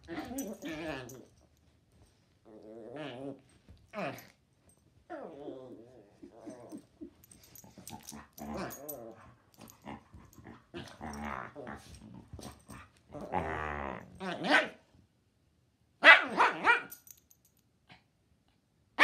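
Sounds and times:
dogs growling: 0:00.0 - 0:01.3, 0:05.1 - 0:14.6
dog barking: 0:14.4 - 0:14.8, 0:16.0 - 0:17.0.

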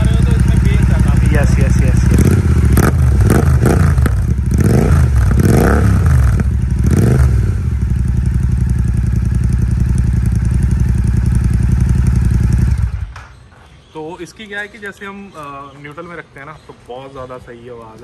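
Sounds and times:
motorcycle engine revving and idling: 0:00.0 - 0:13.4.

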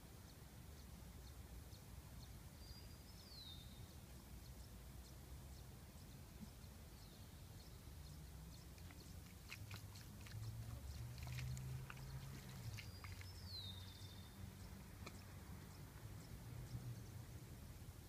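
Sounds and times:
water splashing on foot and grass: 0:08.4 - 0:16.7.

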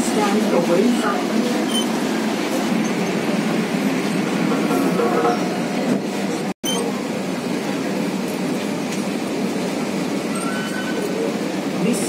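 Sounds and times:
faint passenger voices: 0:00.0 - 0:02.5, 0:05.6 - 0:12.0
train carriage noise: 0:00.0 - 0:12.0.

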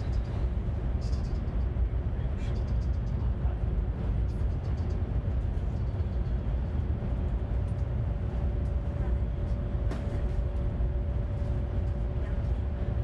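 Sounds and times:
train cabin low rumble: 0:00.0 - 0:13.0.

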